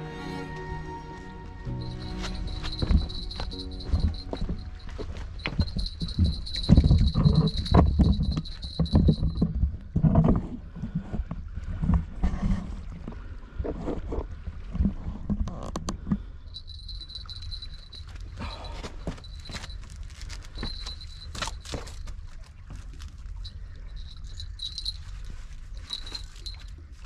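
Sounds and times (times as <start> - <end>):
wind rumbling on microphone: 2.7 - 16.0.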